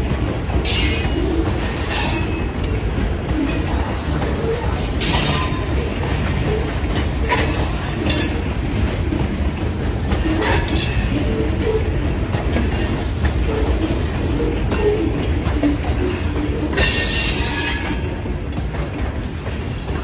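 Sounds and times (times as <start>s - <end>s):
train wheels rumbling on rails: 0.0s - 20.0s
wheel squeals: 10.1s - 18.2s.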